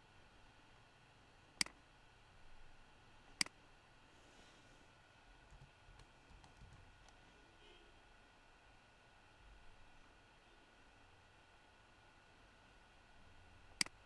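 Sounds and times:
computer mouse clicks: 0:05.5 - 0:07.2.

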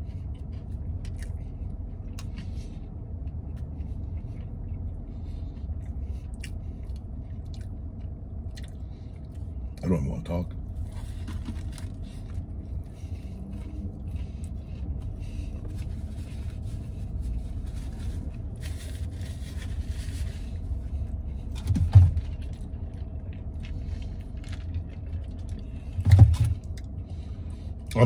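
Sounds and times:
vehicle rumble: 0:00.0 - 0:28.0
rustling and handling noises: 0:10.7 - 0:26.6.

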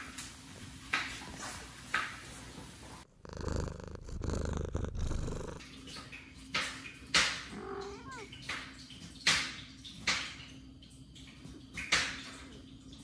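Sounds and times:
cat purring: 0:01.2 - 0:05.7, 0:07.2 - 0:08.4
breathy puffs: 0:03.1 - 0:05.6.

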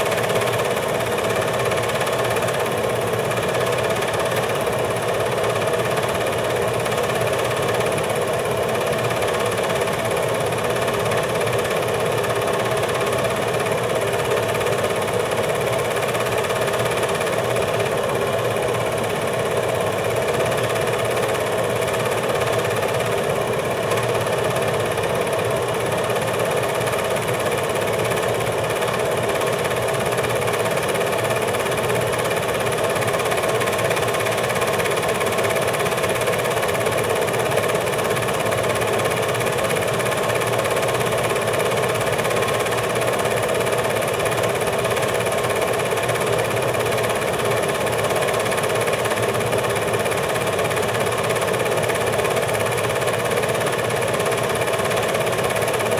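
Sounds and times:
film projector whirring: 0:00.0 - 0:55.9.

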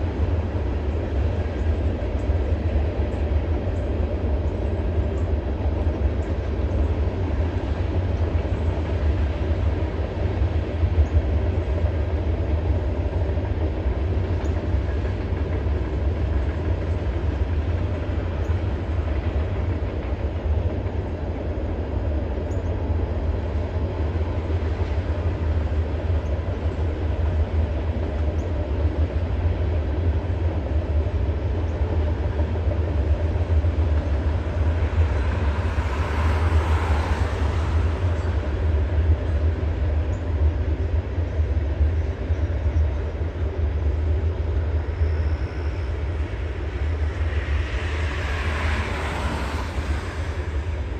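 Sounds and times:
train wheels rumbling on rail: 0:00.0 - 0:50.9.

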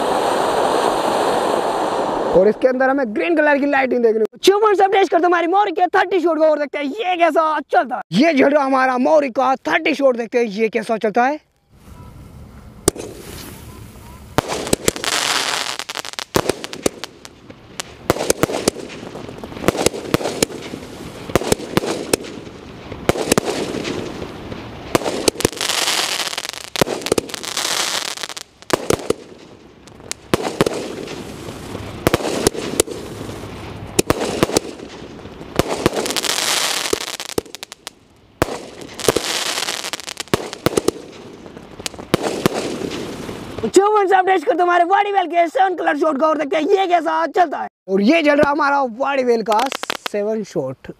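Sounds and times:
firework launches and bursts: 0:00.0 - 0:02.6, 0:12.8 - 0:43.8, 0:49.6 - 0:50.2
firework crackling: 0:00.0 - 0:02.9, 0:11.8 - 0:44.2, 0:49.5 - 0:50.2.

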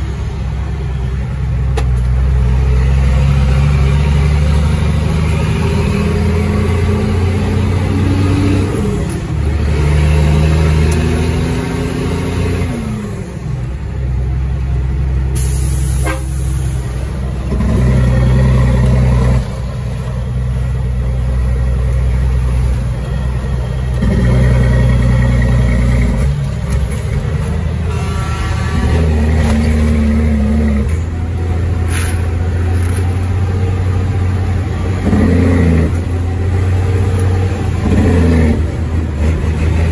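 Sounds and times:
diesel truck engine shifting gears: 0:00.0 - 0:39.9.

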